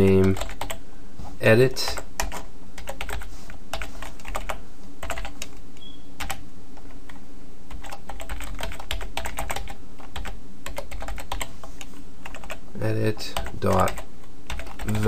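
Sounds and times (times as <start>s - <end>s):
steady low hum: 0.0s - 15.0s
typing on computer keyboard: 0.2s - 0.8s, 1.9s - 5.5s, 6.2s - 6.4s, 7.7s - 11.5s, 12.2s - 12.6s, 13.4s - 15.0s.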